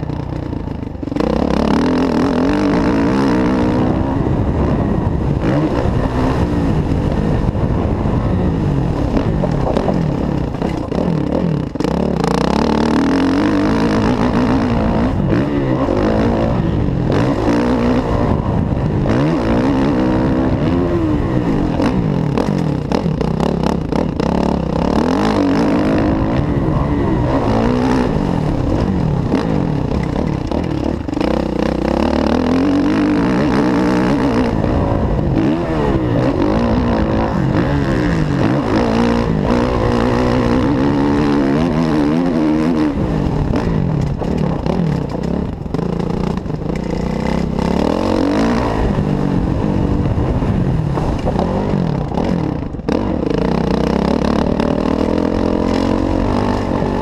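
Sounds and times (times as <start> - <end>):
motocross bike engine revving: 0.0 - 57.0.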